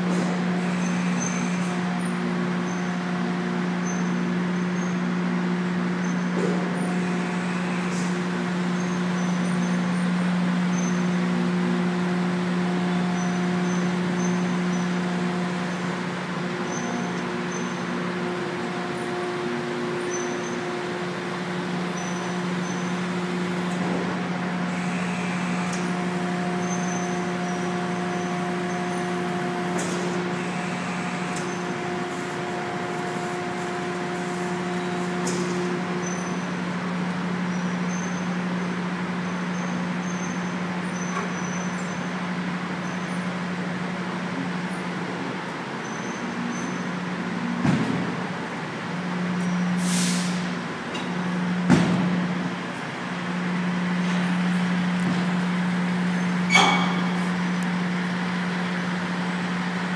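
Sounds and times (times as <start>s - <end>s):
industrial machinery drone: 0.0s - 59.9s
brief hiss: 49.8s - 50.5s.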